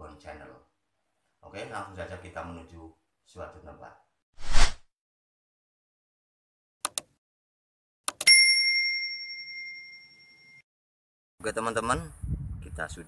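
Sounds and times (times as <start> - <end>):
short whoosh: 4.4 - 4.8
mouse clicks: 6.8 - 7.1
bell ding: 8.2 - 10.6.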